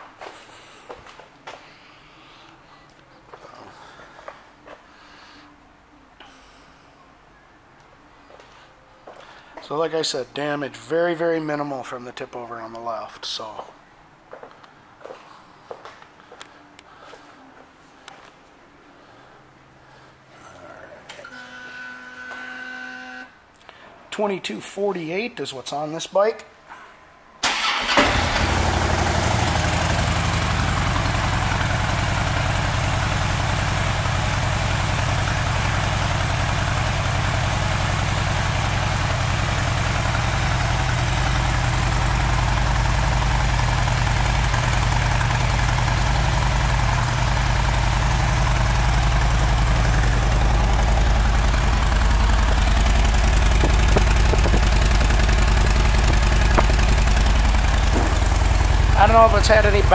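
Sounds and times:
motorcycle engine starting and idling: 0:27.4 - 0:59.9.

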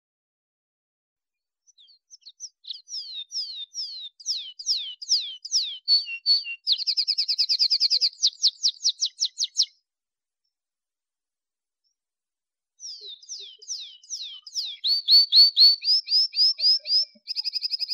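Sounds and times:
canary singing: 0:01.7 - 0:09.8, 0:12.8 - 0:17.9.

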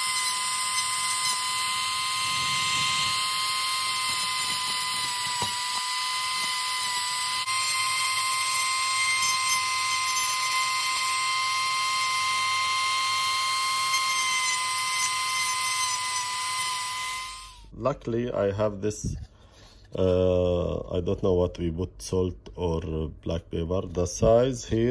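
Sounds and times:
rotary tool high whine: 0:00.0 - 0:17.7.

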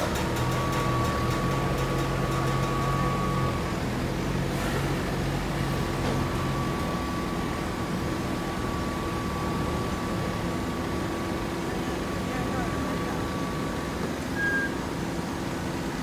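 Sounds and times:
forklift engine running: 0:00.0 - 0:16.0
thin high whine: 0:12.8 - 0:15.0.

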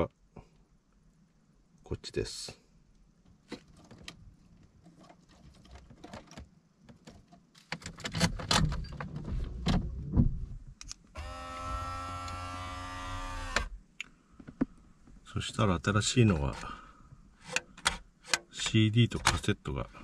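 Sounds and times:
electric motor whine: 0:11.2 - 0:13.8.

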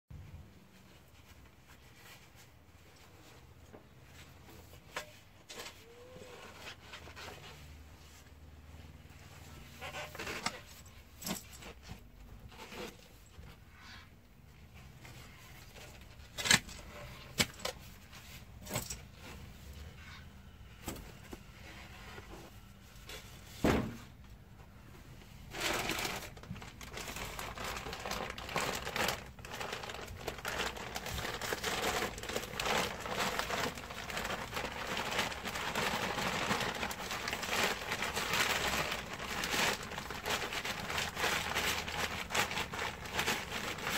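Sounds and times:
plastic crinkling: 0:25.5 - 0:43.9.

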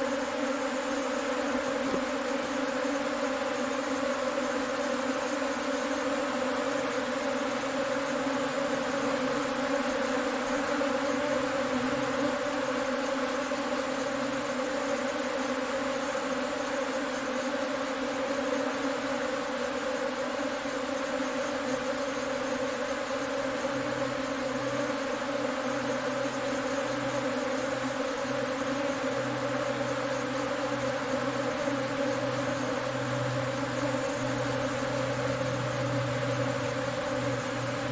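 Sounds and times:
swarm of bees buzzing: 0:00.0 - 0:37.9.

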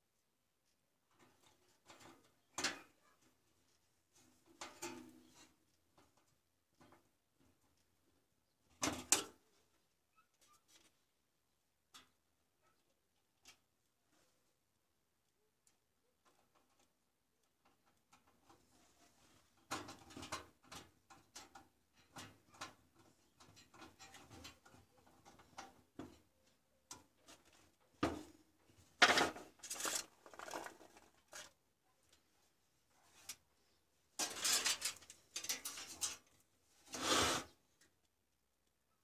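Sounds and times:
rustling and clattering of wiring: 0:16.2 - 0:33.5, 0:34.2 - 0:37.0.

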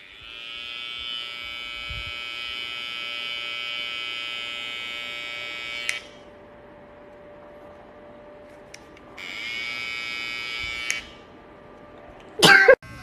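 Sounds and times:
hair trimmer buzzing: 0:00.0 - 0:06.1, 0:09.2 - 0:11.2.

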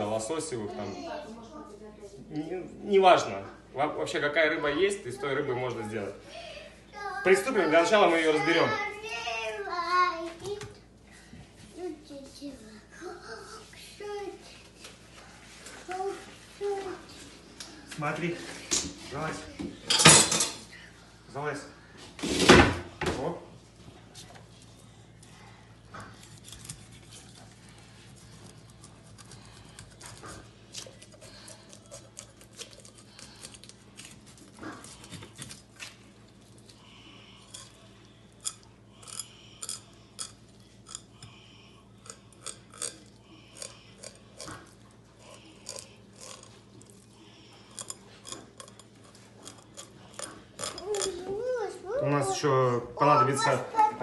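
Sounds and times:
knife scraping strokes: 0:26.1 - 0:35.5.

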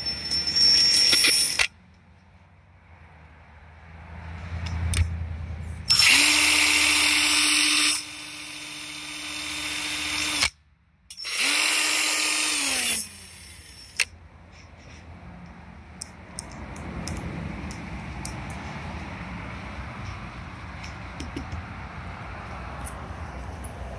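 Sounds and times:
cordless drill spinning: 0:00.0 - 0:01.7, 0:05.9 - 0:10.5, 0:11.1 - 0:14.2.

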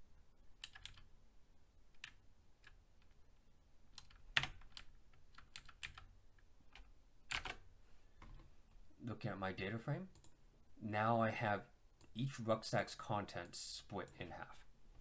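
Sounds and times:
computer keyboard typing: 0:00.6 - 0:01.1, 0:01.9 - 0:03.2, 0:03.9 - 0:06.1, 0:06.7 - 0:07.6.

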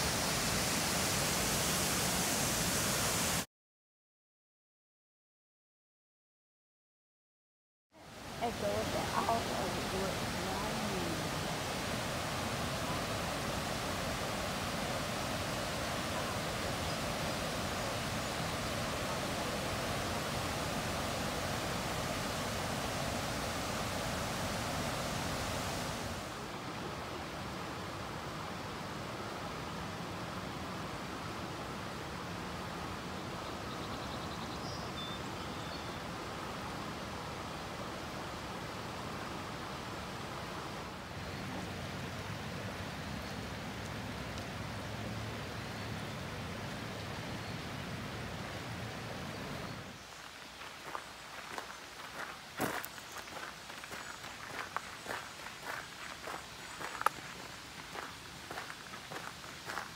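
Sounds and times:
waterfall rushing: 0:00.0 - 0:03.5, 0:08.0 - 0:33.3, 0:47.7 - 0:59.9.

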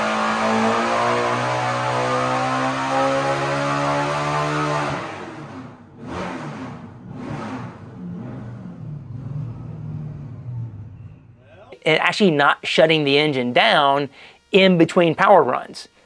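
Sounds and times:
engine running hard: 0:00.0 - 0:11.7.

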